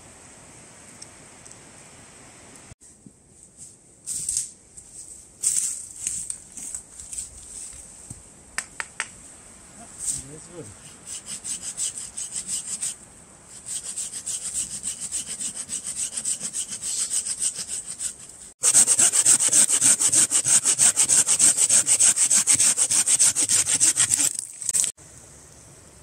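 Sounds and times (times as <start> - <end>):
hand saw cutting wood: 10.2 - 13.0, 13.6 - 24.4.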